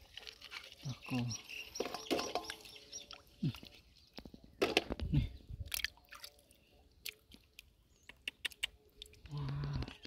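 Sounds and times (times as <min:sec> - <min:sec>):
hands sloshing through muddy water: 0:00.0 - 0:04.1.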